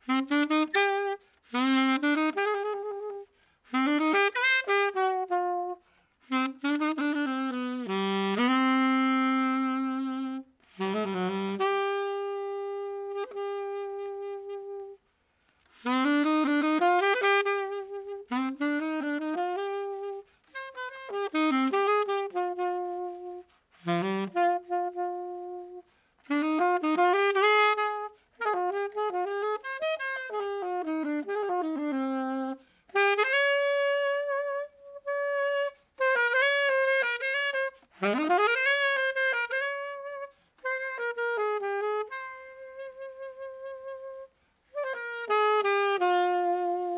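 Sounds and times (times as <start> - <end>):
saxophone playing slow tango melody: 0.0 - 46.9.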